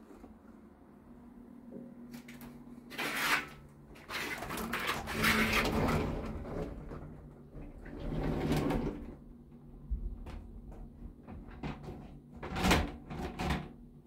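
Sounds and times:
sliding door scraping and rattling: 2.9 - 9.2.

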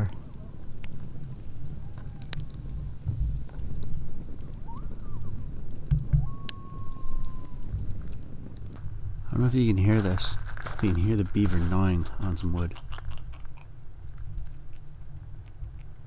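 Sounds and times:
campfire crackling and popping: 0.0 - 16.0
faint distant animal calls: 4.4 - 5.5, 6.1 - 7.8, 12.6 - 13.8.

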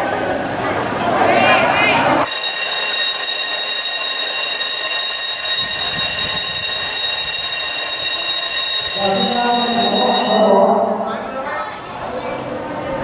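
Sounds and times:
high-pitched alarm tone: 2.2 - 11.4.

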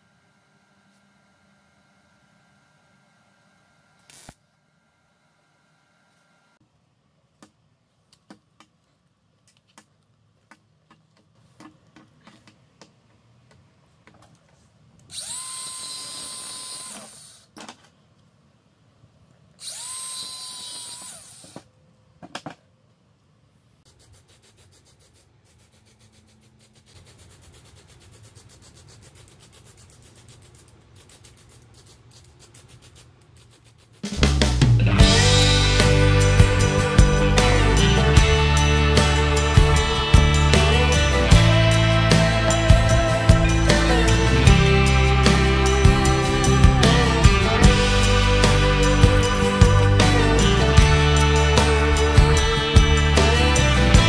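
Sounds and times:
angle grinder cutting metal: 4.1 - 4.4, 15.1 - 17.3, 34.9 - 54.0.

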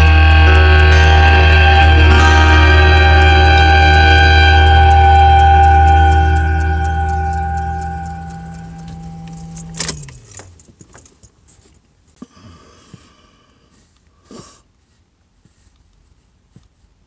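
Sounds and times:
song playing: 0.0 - 9.8.

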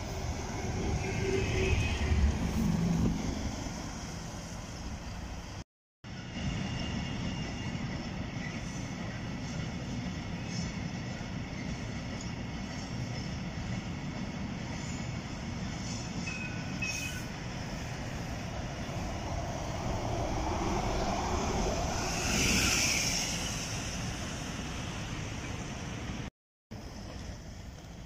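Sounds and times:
bus passing by: 18.0 - 28.0.

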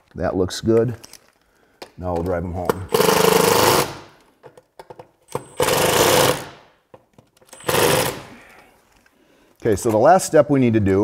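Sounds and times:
power screwdriver driving screws: 5.3 - 6.6, 7.5 - 8.3.

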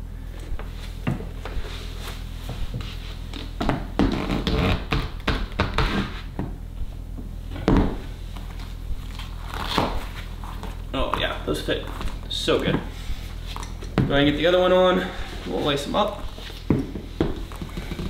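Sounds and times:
skate boot scratching and rubbing: 1.6 - 6.3.

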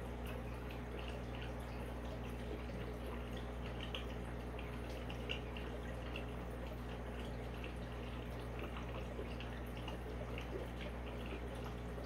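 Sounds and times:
filter humming: 0.0 - 12.0
water trickling and dripping: 0.0 - 12.0.

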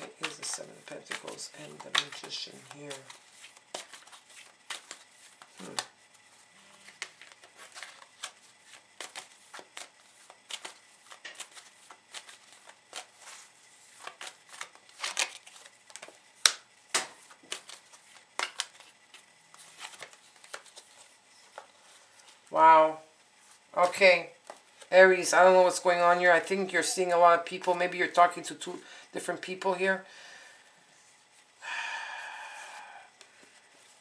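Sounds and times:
cards being shuffled: 0.0 - 22.5, 23.4 - 28.2.

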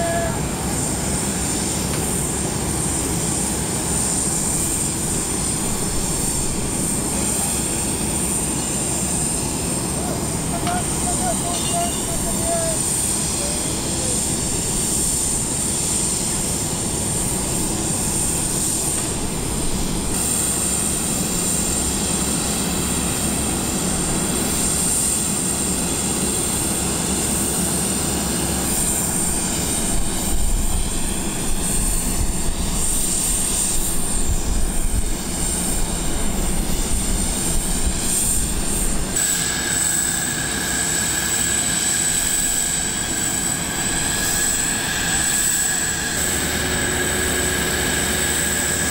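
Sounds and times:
high-pitched machinery whine: 0.0 - 48.9
lower whine: 0.0 - 48.9
low machinery rumble: 41.3 - 48.9.

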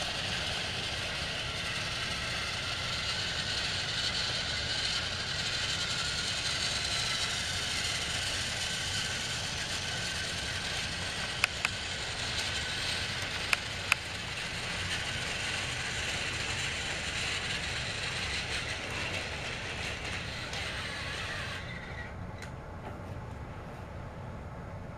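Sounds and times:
toy train motor whirring: 0.0 - 22.2.

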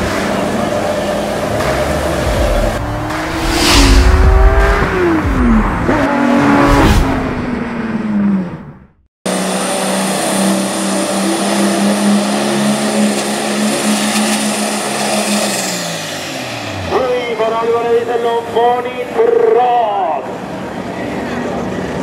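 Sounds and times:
truck engine revving: 0.0 - 16.9.

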